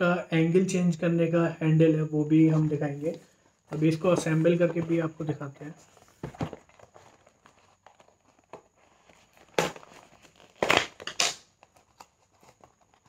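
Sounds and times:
cardboard box being opened: 5.8s - 13.0s.

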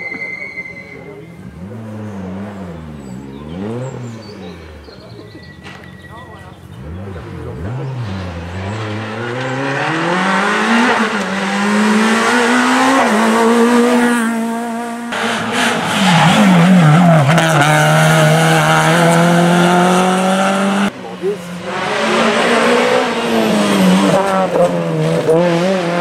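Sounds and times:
rally car engines at full throttle: 0.8s - 26.0s.

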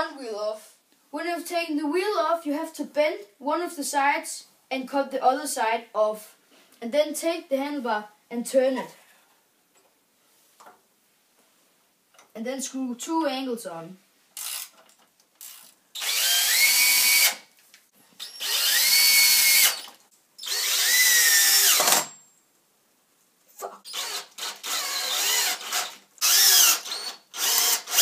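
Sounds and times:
cordless drill motor: 14.4s - 14.8s, 15.4s - 17.4s, 18.2s - 22.1s, 23.8s - 28.0s
short drill trigger bursts: 14.4s - 14.8s, 15.4s - 17.4s, 18.2s - 22.1s, 23.8s - 28.0s.

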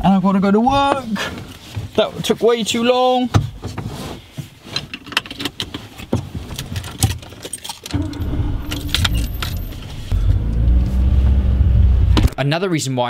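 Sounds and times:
keys jangling: 6.8s - 8.0s
car engine starting and running: 7.9s - 12.4s.

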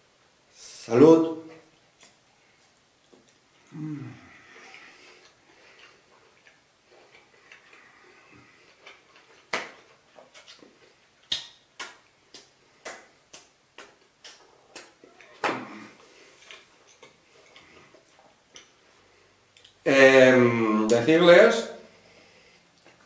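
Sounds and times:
person chewing with mouth smacks: 1.7s - 19.8s, 22.7s - 23.0s.

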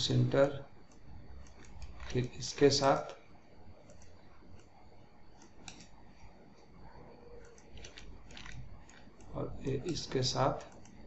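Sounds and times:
low room hum: 0.0s - 11.0s
computer mouse clicks: 0.8s - 3.1s, 3.8s - 6.7s, 7.3s - 11.0s.

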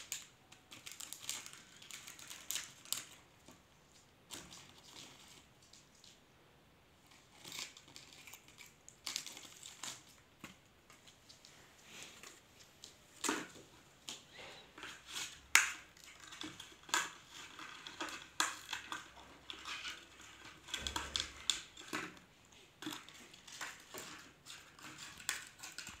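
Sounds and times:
beak crackling and clicking on plastic: 0.0s - 3.6s, 7.3s - 11.4s, 12.8s - 26.0s.

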